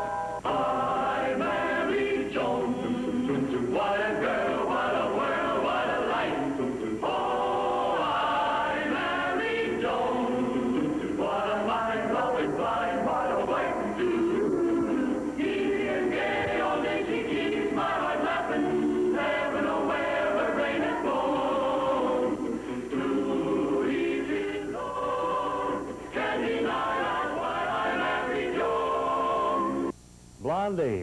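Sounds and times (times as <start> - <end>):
chorus singing a lively tune: 0.4 - 29.9.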